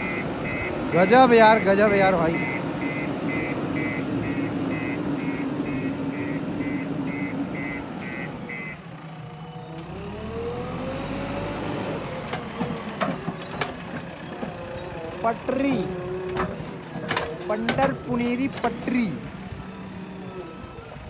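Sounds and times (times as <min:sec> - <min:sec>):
reversing alarm beeping: 0:00.0 - 0:09.4, 0:14.5 - 0:21.0
diesel engine running: 0:00.0 - 0:21.0.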